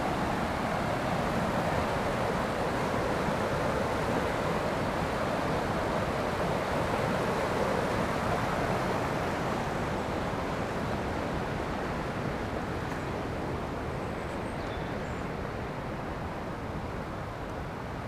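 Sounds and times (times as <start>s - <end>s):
river rushing over rocks: 0.0s - 14.2s.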